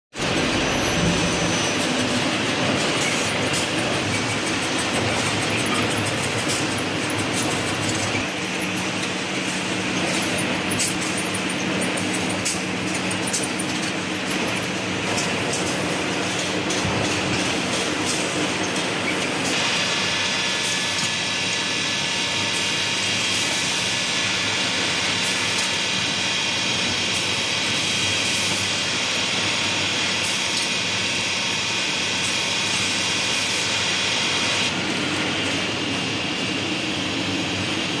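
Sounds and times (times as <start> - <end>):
high machine whine: 0.1 - 38.0
machinery drone: 0.2 - 10.6.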